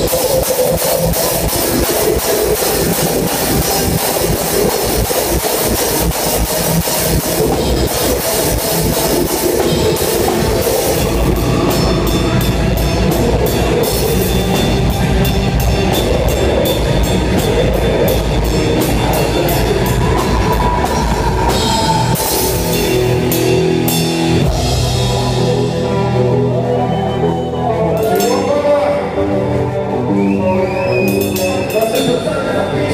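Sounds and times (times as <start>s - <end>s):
loud drumming with cymbals: 0.0s - 25.8s
bass and guitar: 0.0s - 32.9s.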